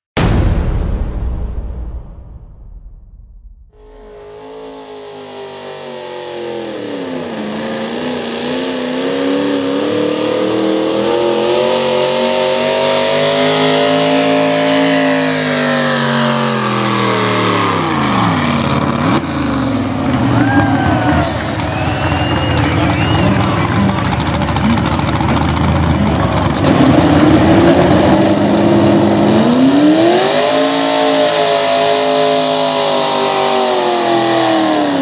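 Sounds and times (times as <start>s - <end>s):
pulling tractor engine under load: 21.0s - 28.5s.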